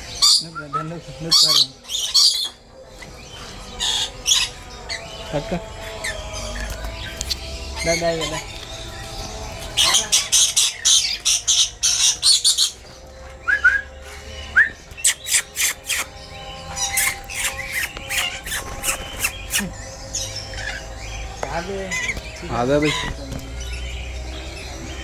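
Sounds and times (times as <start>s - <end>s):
lorikeets screeching: 0.0s - 25.0s.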